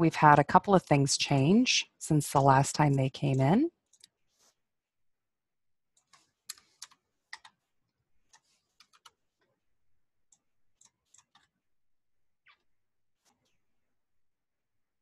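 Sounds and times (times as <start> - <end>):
keyboard and mouse clicks: 6.0 - 7.6, 8.2 - 9.6, 10.3 - 11.6.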